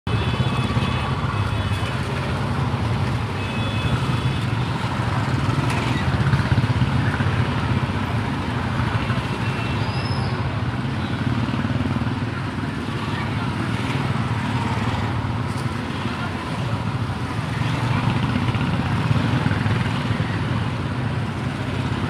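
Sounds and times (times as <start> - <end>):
motorcycles riding past: 10.3 - 22.0.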